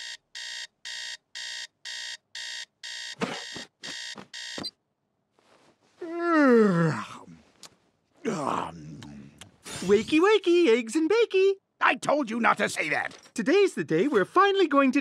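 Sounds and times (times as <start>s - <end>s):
alarm clock beeping: 0.0s - 4.8s
man yawning: 6.0s - 7.4s.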